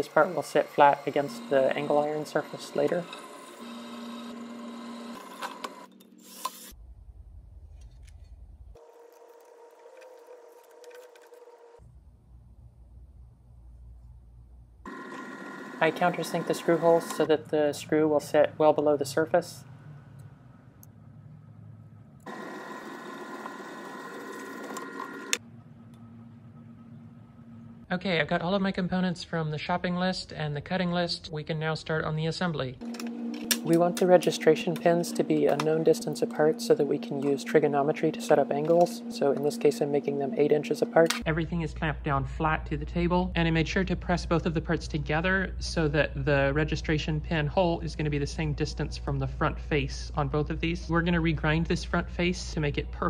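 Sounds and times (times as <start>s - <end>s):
drill press motor humming: 0.0s - 6.2s, 8.8s - 11.8s, 14.8s - 17.3s, 22.2s - 27.9s
low hum: 6.8s - 8.8s, 11.8s - 53.0s.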